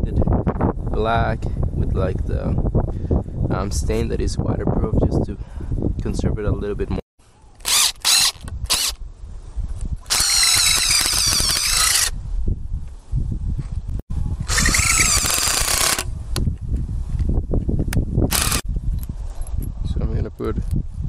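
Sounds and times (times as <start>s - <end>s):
power drill driving screws into wood: 7.6s - 9.0s, 10.1s - 12.1s, 14.5s - 16.1s, 18.3s - 18.6s.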